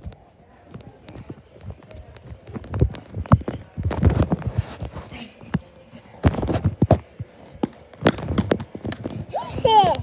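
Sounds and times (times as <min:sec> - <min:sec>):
rubbing against microphone: 0:02.9 - 0:07.1.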